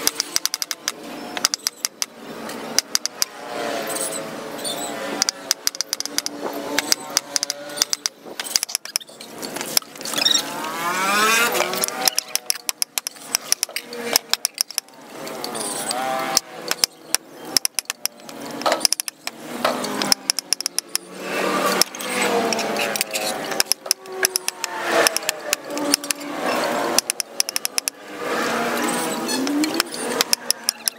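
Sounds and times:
passing vehicle engine: 2.2 - 8.0, 10.4 - 12.5, 14.9 - 16.7, 19.4 - 30.9.

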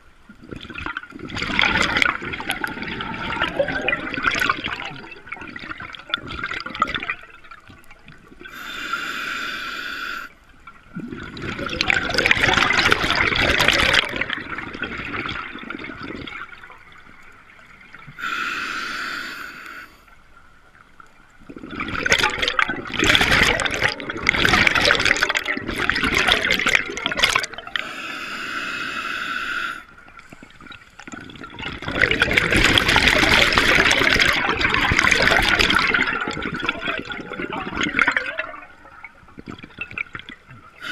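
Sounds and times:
exhaled bubbles rushing: 0.3 - 8.5, 10.7 - 18.2, 21.4 - 27.8, 29.9 - 40.9
scuba regulator breathing underwater: 8.5 - 10.4, 18.2 - 20.1, 27.7 - 30.7.

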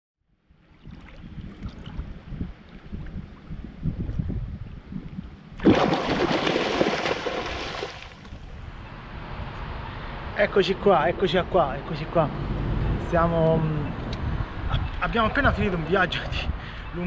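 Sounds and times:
wind rumbling on microphone: 0.5 - 17.0
stream water rushing: 5.6 - 8.4.

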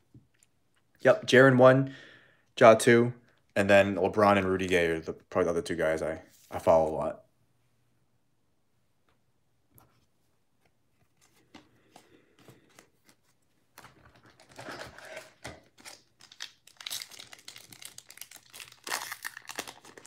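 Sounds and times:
card pack wrapper crinkling: 13.8 - 20.0.

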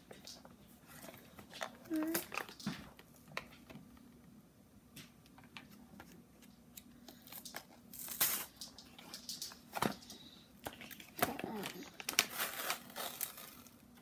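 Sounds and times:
packaging crinkling: 7.1 - 14.0
packaging ripping: 7.3 - 9.5, 10.8 - 13.9.

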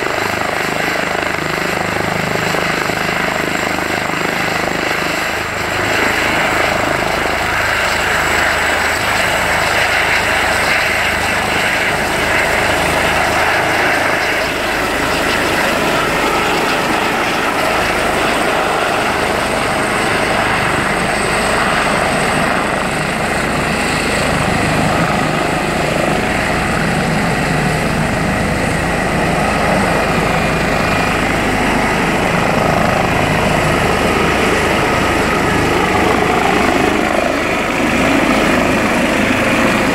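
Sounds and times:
helicopter lifting off: 0.0 - 39.9.

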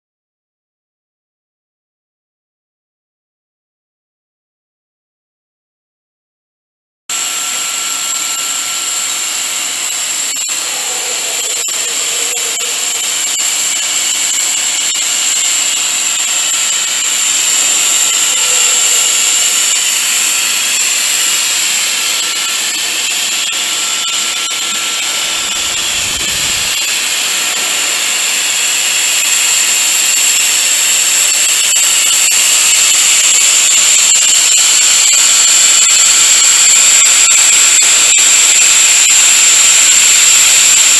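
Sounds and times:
extrusion machine whine: 7.1 - 40.9
mechanical hiss: 8.2 - 37.2.

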